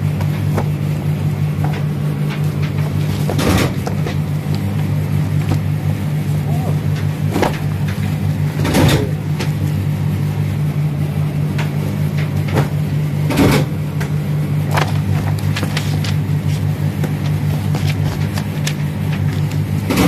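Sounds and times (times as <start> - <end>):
low machine hum: 0.0 - 20.0
paper and cardboard rustling: 0.1 - 5.8, 14.6 - 20.0.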